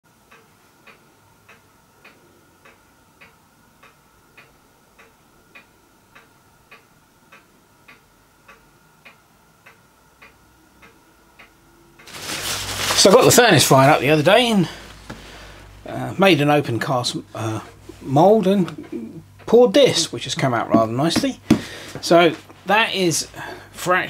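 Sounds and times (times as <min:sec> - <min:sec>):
clock ticking faintly: 0:00.1 - 0:12.2.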